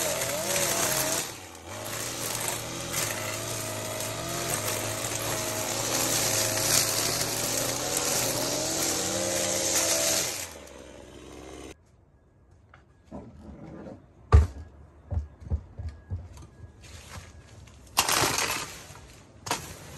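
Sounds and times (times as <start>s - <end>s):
string trimmer cutting weeds: 0.0s - 11.8s.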